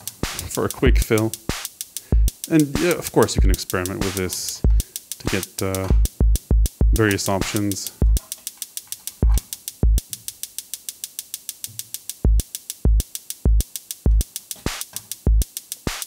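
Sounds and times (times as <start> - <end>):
snare hits: 0.0 - 0.6, 14.6 - 15.0
hi-hat ticks: 0.0 - 16.0.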